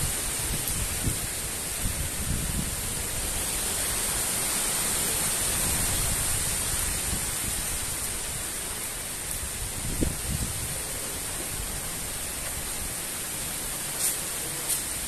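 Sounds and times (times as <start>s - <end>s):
wind buffeting microphone: 0.0s - 4.2s, 9.3s - 13.0s
storm wind through trees: 0.0s - 15.0s.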